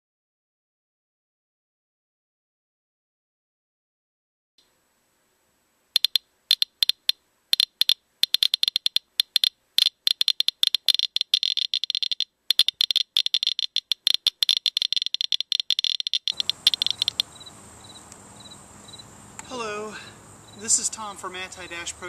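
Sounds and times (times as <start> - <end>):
geiger counter clicking: 6.0 - 17.3.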